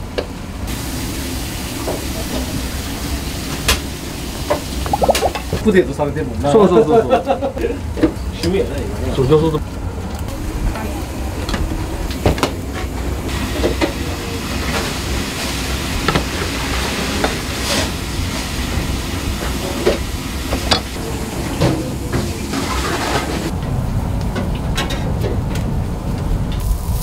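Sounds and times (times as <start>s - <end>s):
steady hiss: 26.6s - 27.0s.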